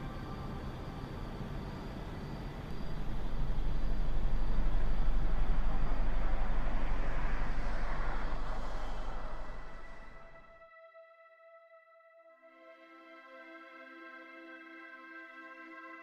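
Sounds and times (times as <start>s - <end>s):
low steady rumble: 0.0s - 10.5s.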